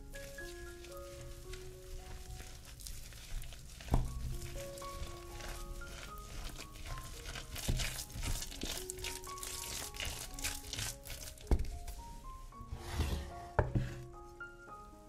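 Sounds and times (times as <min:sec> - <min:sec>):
spatula mashing food in bowl: 0:00.0 - 0:12.0
light plucked background music: 0:00.0 - 0:15.0.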